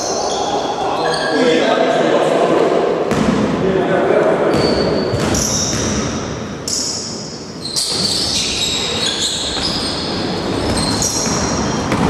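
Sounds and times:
sneakers squeaking on wooden floor: 0.1 - 1.5, 4.4 - 12.0
basketball bouncing: 3.1 - 3.5, 4.5 - 6.4, 9.6 - 12.0.

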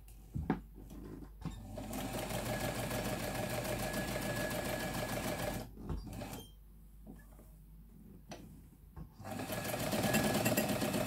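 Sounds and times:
sewing machine stitching: 1.6 - 6.5, 9.2 - 11.0.

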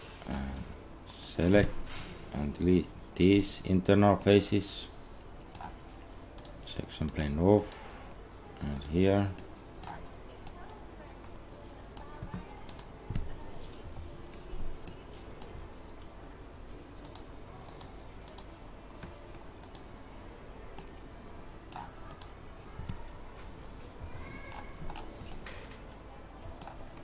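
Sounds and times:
mouse and keyboard clicks: 6.4 - 7.8, 17.0 - 19.9, 24.5 - 25.8.

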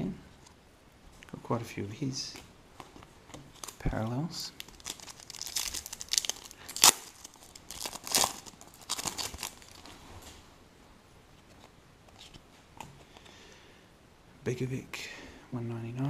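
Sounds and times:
foil wrapper crinkling: 2.8 - 10.3
foil ripping: 4.6 - 10.0.

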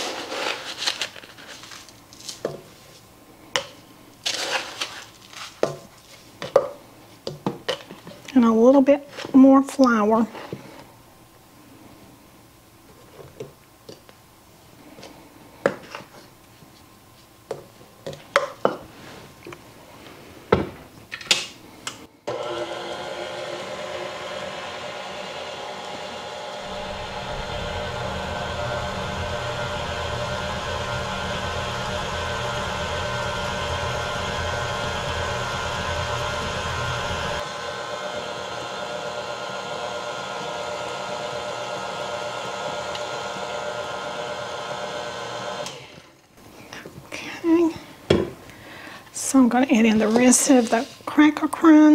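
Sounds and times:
stand mixer motor whine: 22.3 - 46.1
deep low rumble: 26.6 - 37.4.

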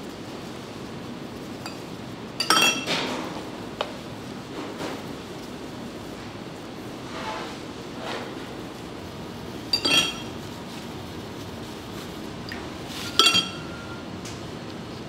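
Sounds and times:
steady background noise: 0.0 - 15.0
tableware clinking: 2.4 - 3.2, 9.7 - 10.4, 13.0 - 14.1.

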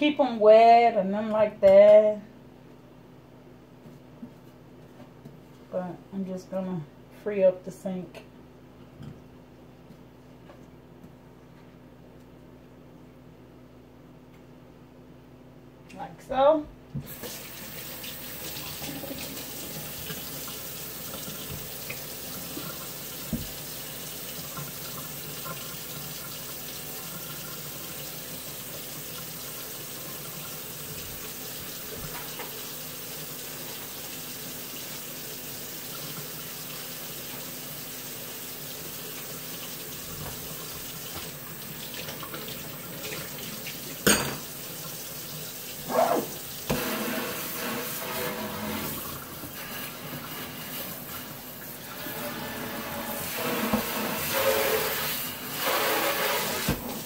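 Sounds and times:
faucet running into a sink: 17.1 - 57.0.

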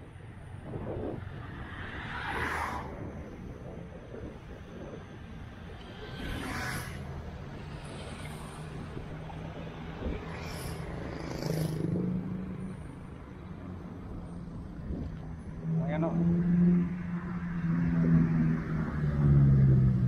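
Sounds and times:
wind noise: 0.0 - 15.6
road traffic engine hum: 0.0 - 20.0.

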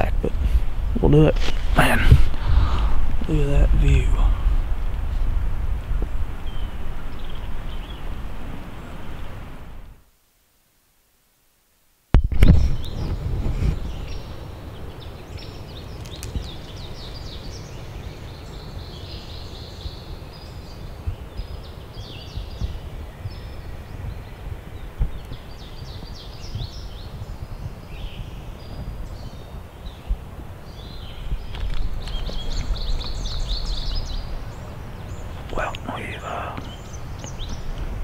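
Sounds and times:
songbirds singing and chirping: 0.0 - 9.6, 12.2 - 38.0
wind rumble on microphone: 0.0 - 10.0, 12.1 - 38.0.

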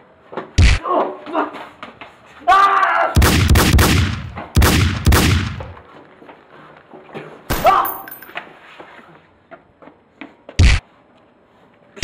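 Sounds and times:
echoing gunshots: 3.2 - 5.8.

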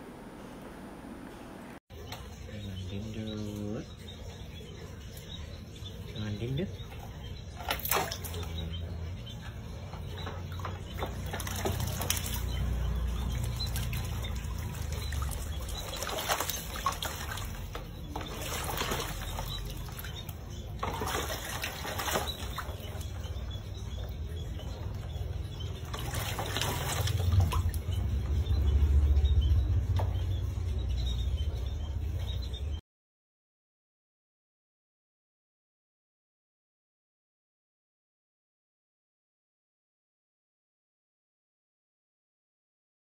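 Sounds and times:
water splashing in metal basin: 3.6 - 32.7.

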